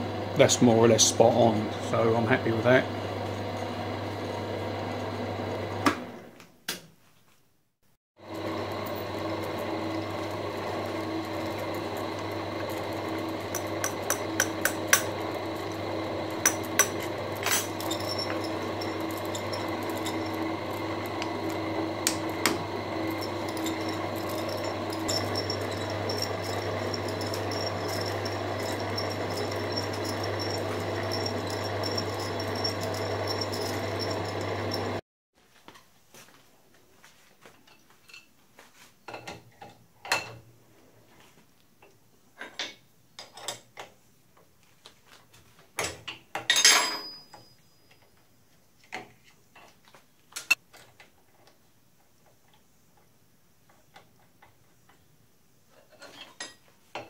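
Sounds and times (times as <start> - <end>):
milling machine spindle running: 8.2 - 35.0.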